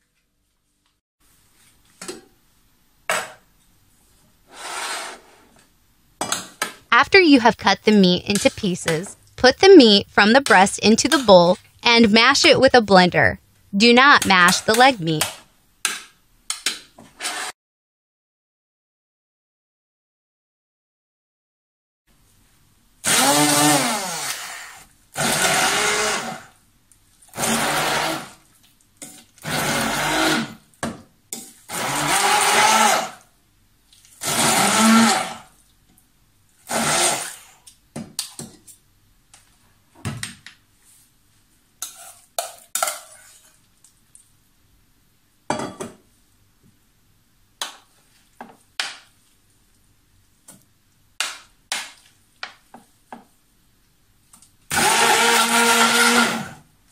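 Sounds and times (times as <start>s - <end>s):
stick blender motor whine: 23.1s - 26.5s, 29.4s - 30.6s, 31.7s - 33.2s, 34.2s - 35.4s, 54.7s - 56.6s.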